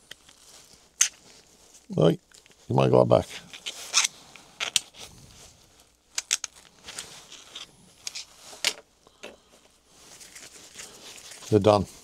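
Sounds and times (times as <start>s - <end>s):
plastic parts and tools clicking: 3.6s - 5.0s, 6.1s - 9.4s.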